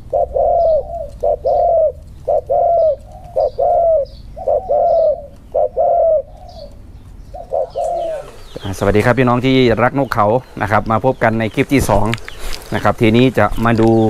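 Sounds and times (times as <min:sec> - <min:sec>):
dove cooing: 0:00.0 - 0:10.6.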